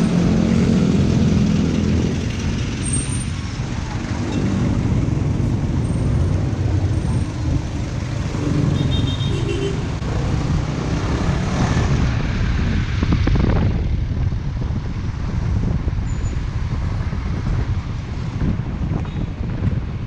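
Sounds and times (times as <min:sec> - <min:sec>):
road traffic: 0:00.0 - 0:20.0
wind noise on microphone: 0:09.8 - 0:20.0.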